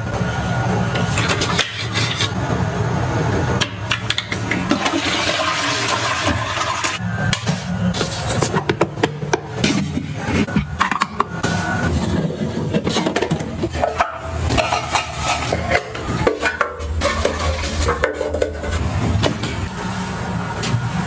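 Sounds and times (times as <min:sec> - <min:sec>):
rubbing and scraping: 0:01.0 - 0:02.4, 0:11.4 - 0:20.2.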